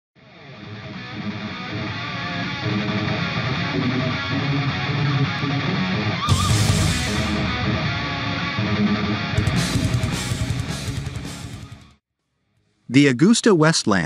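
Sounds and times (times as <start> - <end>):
strummed guitar music: 0.2 - 12.0.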